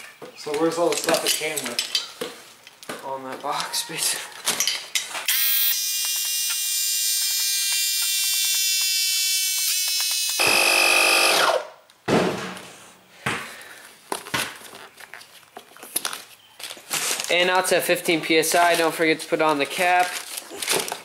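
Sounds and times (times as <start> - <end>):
sharp clicks: 5.3 - 11.6
air compressor motor whining: 5.3 - 11.7.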